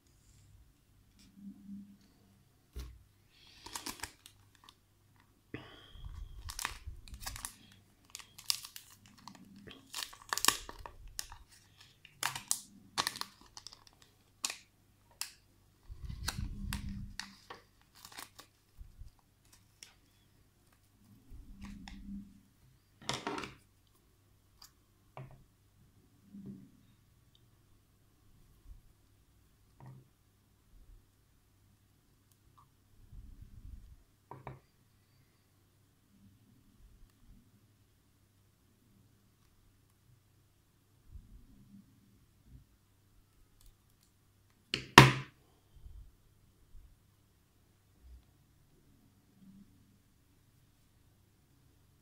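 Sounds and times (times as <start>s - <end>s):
plastic and paper packets crinkling: 3.3s - 4.8s, 6.0s - 20.1s.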